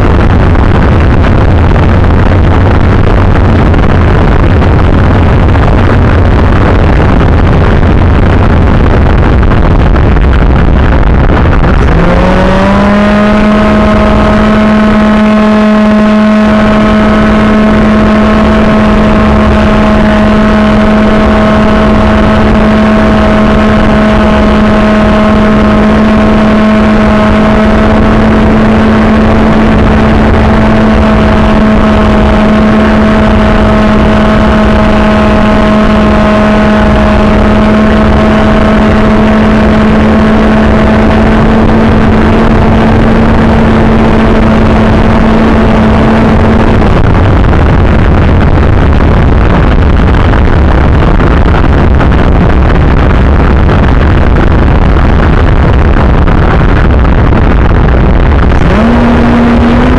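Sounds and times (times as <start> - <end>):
wind noise on microphone: 0.0 - 59.9
electric motor and propeller whining: 11.9 - 36.2.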